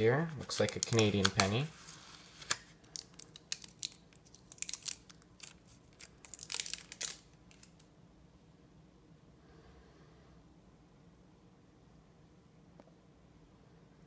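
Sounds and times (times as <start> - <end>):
paper rustling: 0.0 - 7.8
adhesive tape peeling: 0.6 - 7.8.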